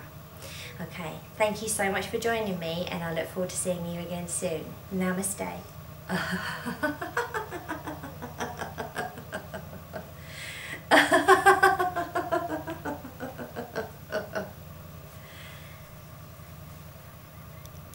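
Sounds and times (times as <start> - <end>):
woman laughing: 6.1 - 14.6.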